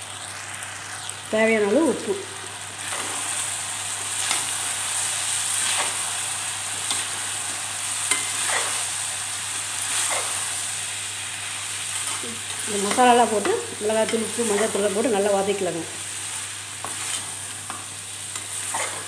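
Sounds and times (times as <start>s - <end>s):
vegetables sizzling in a pan: 0.0s - 19.0s
steel ladle scraping pan: 18.4s - 19.0s.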